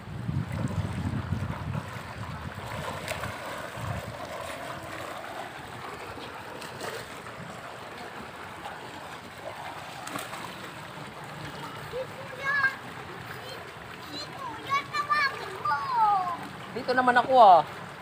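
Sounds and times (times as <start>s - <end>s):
wind rumble on microphone: 0.0s - 4.8s
pool water sloshing and splashing: 0.0s - 18.0s
water bubbling from pool jet: 0.0s - 18.0s.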